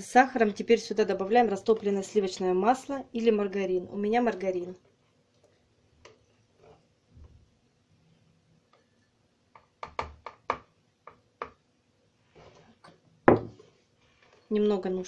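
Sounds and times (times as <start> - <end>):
cup set down on table: 13.3 - 13.6.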